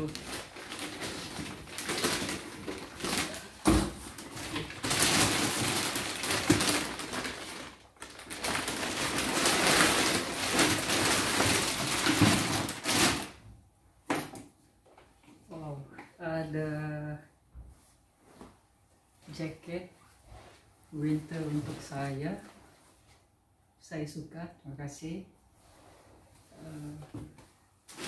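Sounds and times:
plastic bags crinkling: 0.0 - 13.4.

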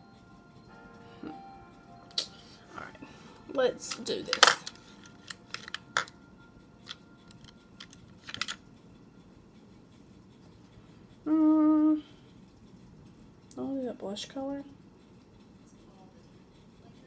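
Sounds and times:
rattle of clicks: 6.9 - 8.7.

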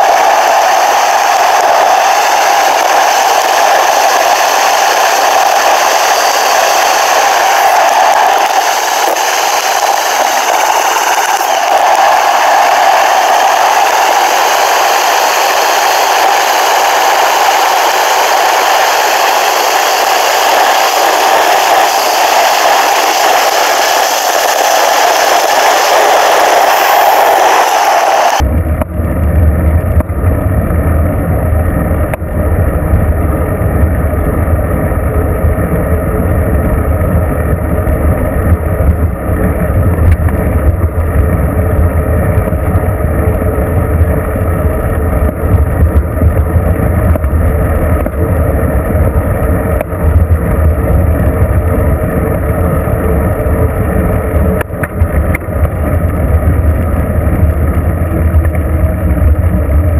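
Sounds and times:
bicycle road rumble: 28.3 - 59.9.

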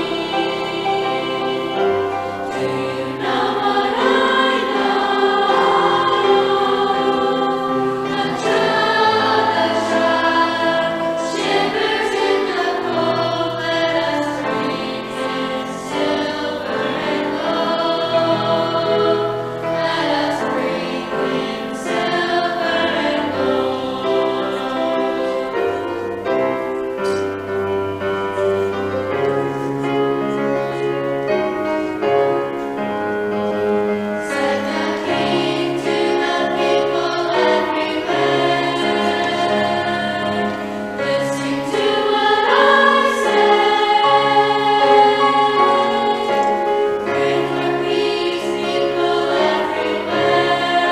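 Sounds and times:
choir singing: 0.0 - 50.9
piano accompaniment: 0.0 - 50.9.

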